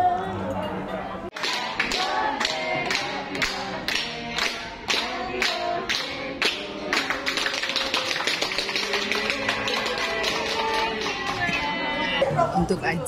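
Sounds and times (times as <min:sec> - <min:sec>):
hands clapping to a beat: 0:01.3 - 0:11.6
people singing a song: 0:01.3 - 0:12.5.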